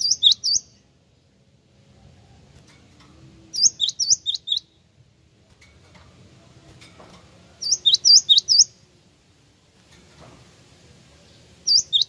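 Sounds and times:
bird singing high whistled notes: 0.0 - 0.8, 3.5 - 4.8, 7.6 - 8.8, 11.6 - 12.0.

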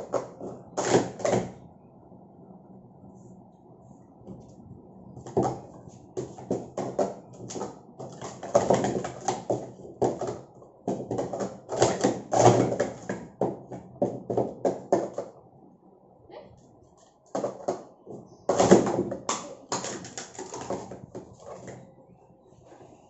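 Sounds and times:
plastic cups clattering: 0.0 - 1.6, 5.2 - 15.4, 17.2 - 21.9.

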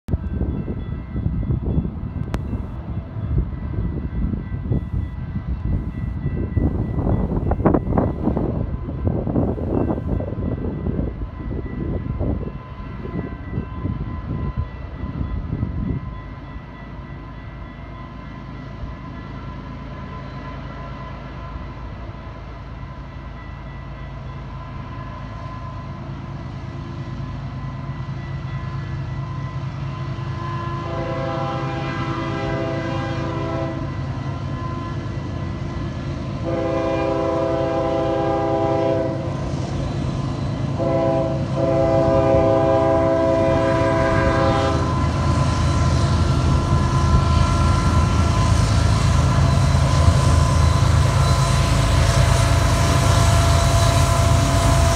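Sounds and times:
diesel locomotive engine rumble: 0.1 - 54.9
locomotive horn blasts: 30.3 - 34.0, 36.4 - 39.3, 40.8 - 45.2.

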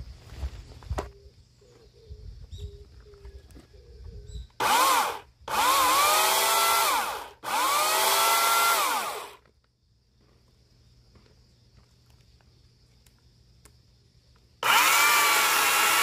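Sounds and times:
electric chainsaw motor whining: 4.6 - 9.4, 14.6 - 16.0.

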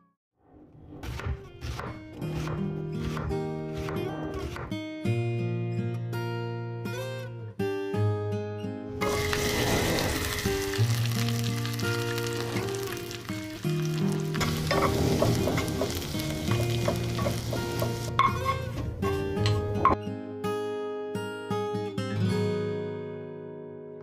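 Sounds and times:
soft acoustic guitar music: 4.7 - 24.0
onions sizzling in oil: 9.0 - 18.1.

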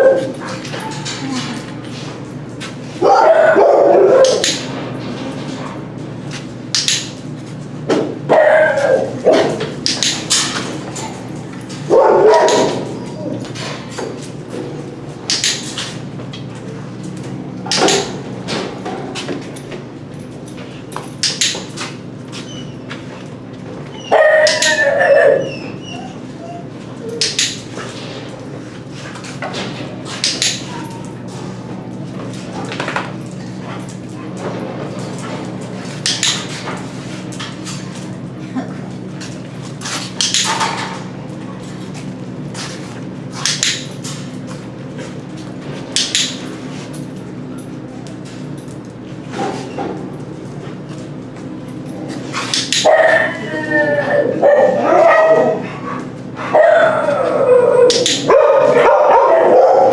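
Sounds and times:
dogs barking: 0.0 - 1.1, 3.0 - 4.7, 8.2 - 10.0, 11.8 - 13.4, 24.0 - 27.3, 52.6 - 53.5, 54.1 - 59.9.

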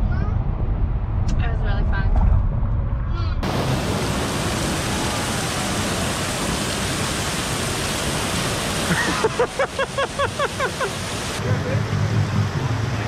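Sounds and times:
water rushing down a slide: 3.4 - 11.4.

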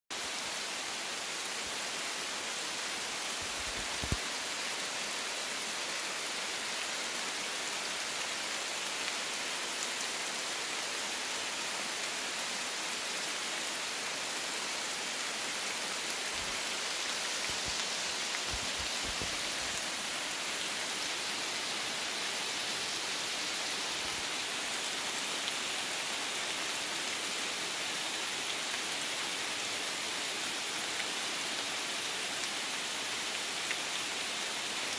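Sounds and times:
rain on leaves and rocks: 0.1 - 34.9.

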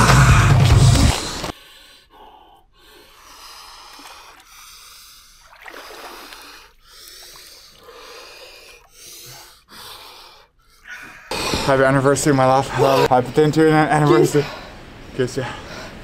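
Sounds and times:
person breathing hard: 0.0 - 11.8.

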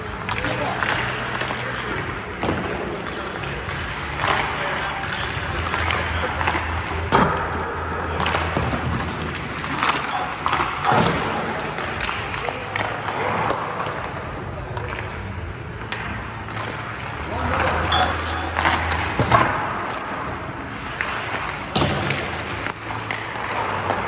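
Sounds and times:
hockey sticks and pucks clacking: 0.0 - 24.0
skate blades scraping ice: 15.1 - 24.0.

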